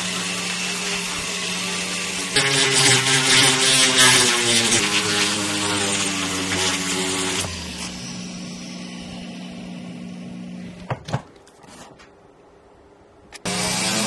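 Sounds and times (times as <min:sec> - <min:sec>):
tool grinding against metal: 0:00.0 - 0:10.6
rotary tool whining: 0:00.0 - 0:10.8.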